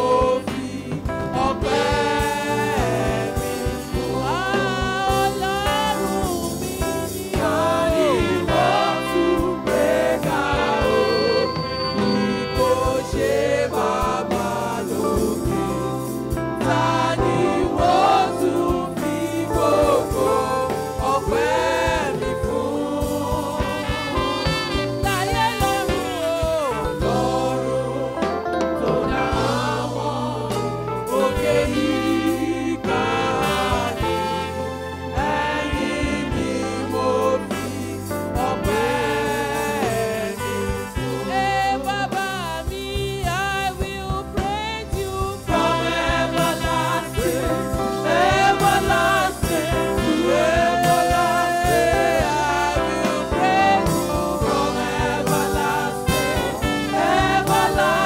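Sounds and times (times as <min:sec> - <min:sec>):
backing singers: 0:00.0 - 0:58.0
instrumental accompaniment with beat: 0:00.0 - 0:58.0
woman singing into a microphone: 0:25.0 - 0:27.2, 0:40.5 - 0:45.6.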